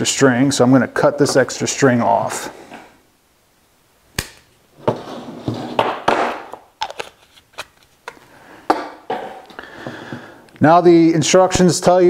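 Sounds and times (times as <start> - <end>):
sharp snip: 4.2 - 4.5.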